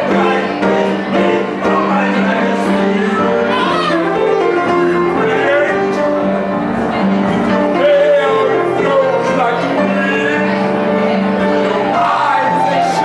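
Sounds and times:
person singing: 0.0 - 13.0.

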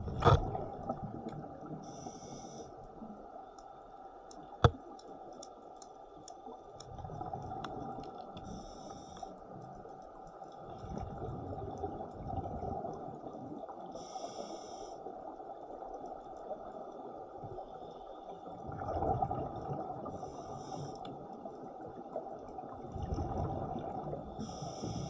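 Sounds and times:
rumble of exhaled bubbles: 0.0 - 1.9, 6.8 - 8.5, 10.6 - 13.6, 18.5 - 20.3, 21.8 - 25.0
faint ticks: 1.2 - 11.0, 20.0 - 21.6
regulator inhale hiss: 1.8 - 3.0, 8.4 - 9.5, 13.9 - 15.2, 20.1 - 21.2, 24.4 - 25.0.

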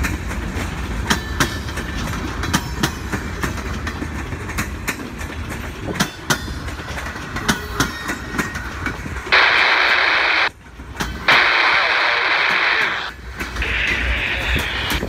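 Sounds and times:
train wheels clacking over rail joints: 0.0 - 9.4, 10.5 - 11.5, 13.0 - 15.0
loud steady hiss: 9.3 - 10.5, 11.3 - 15.0.

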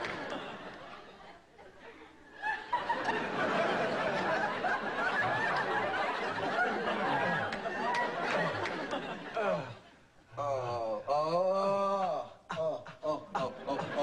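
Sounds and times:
studio audience laughing: 0.0 - 10.0, 13.2 - 14.0.

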